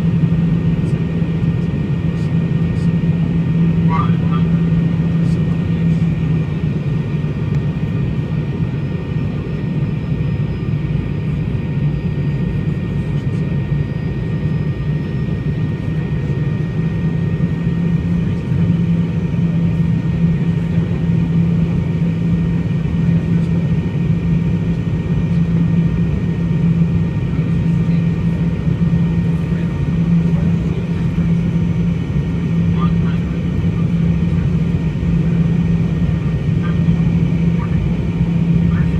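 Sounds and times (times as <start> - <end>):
jet engines droning: 0.0 - 38.9
airflow rushing in cabin: 15.9 - 38.9.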